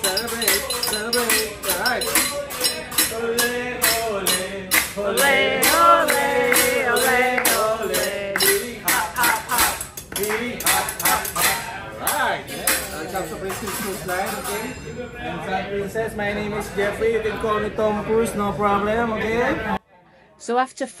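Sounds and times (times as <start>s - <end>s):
man singing: 0.0s - 11.7s
fast tapping beat: 0.0s - 14.4s.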